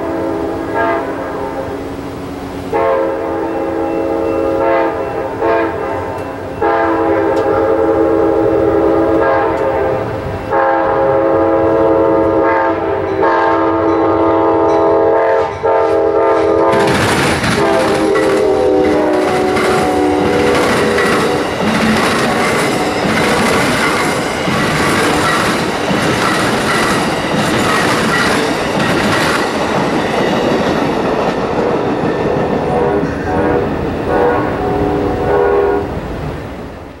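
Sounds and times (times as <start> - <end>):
train horn: 0.0 - 27.2, 31.5 - 36.0
train wheels clicking over rail joints: 15.5 - 33.3.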